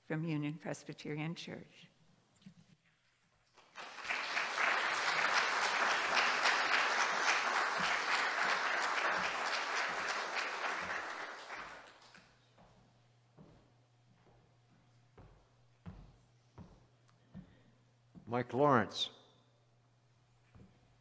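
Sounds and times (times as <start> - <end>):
audience applauding: 3.6 - 12.3.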